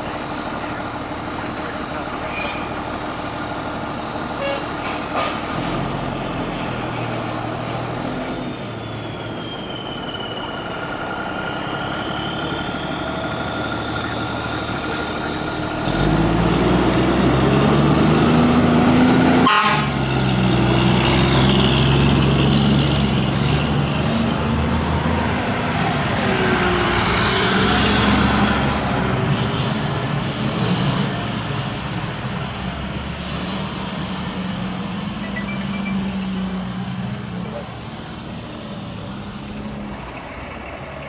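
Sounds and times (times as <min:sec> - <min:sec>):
fire truck engine pulling out: 0:00.0 - 0:41.0
air horn blasts: 0:19.4 - 0:20.0.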